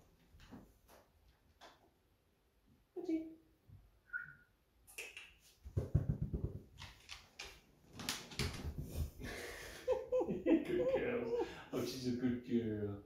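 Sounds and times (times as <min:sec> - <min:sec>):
dog claws clicking on wooden floor: 0:05.8 - 0:08.8.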